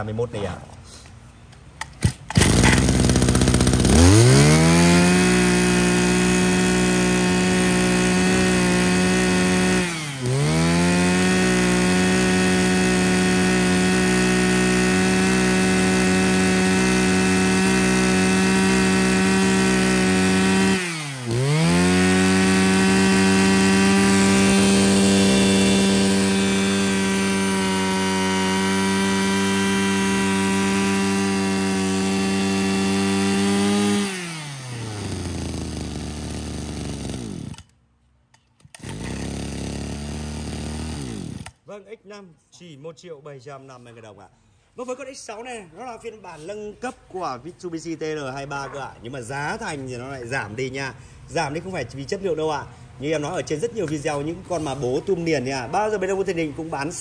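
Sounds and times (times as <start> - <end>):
brush cutter engine revving: 1.8 - 37.8, 38.6 - 41.7, 53.5 - 57.0.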